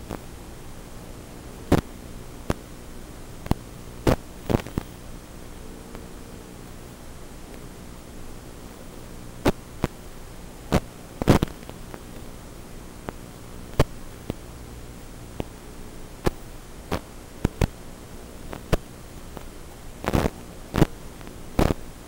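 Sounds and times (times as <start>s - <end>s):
sharp crackling pops: 0.0s - 0.4s, 1.5s - 10.0s, 10.6s - 22.0s
electrical hum and hiss: 0.0s - 22.0s.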